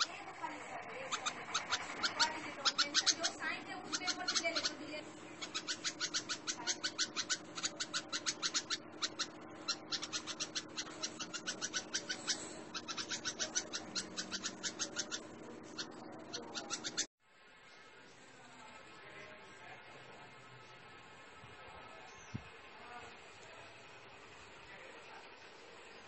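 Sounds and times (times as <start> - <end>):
bird harsh alarm chatter: 0.0 - 17.1.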